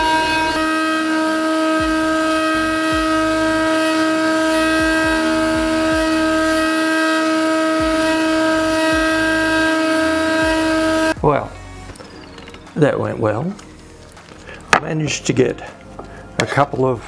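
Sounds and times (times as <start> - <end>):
spindle motor whine engraving wood: 0.0 - 11.2.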